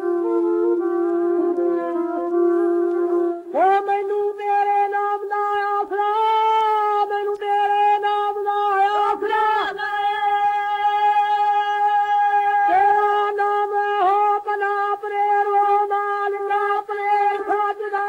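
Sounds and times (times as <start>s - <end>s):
folk singing from old record: 7.0s - 18.0s.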